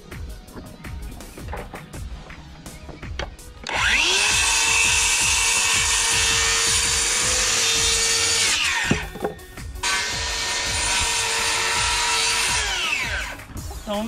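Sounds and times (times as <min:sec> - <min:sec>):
chainsaw cutting wood: 0:03.6 - 0:09.2, 0:09.8 - 0:13.5.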